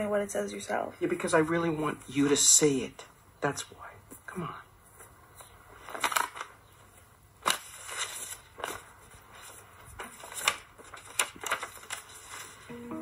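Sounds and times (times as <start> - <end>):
paper rustling and crinkling: 4.9 - 12.8.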